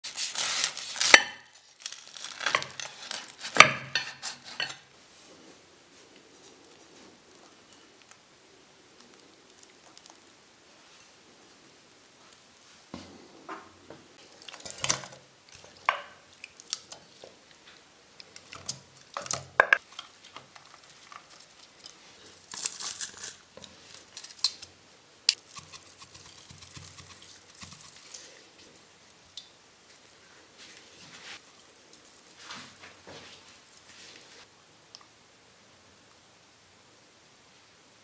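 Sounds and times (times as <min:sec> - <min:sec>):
rustling: 0:00.0 - 0:13.4, 0:29.8 - 0:34.5.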